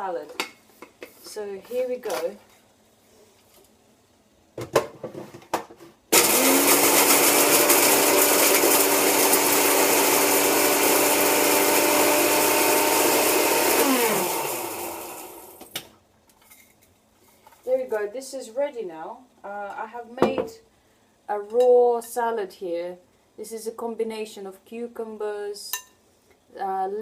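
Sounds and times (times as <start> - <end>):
spice grinder motor whining: 6.2 - 15.6.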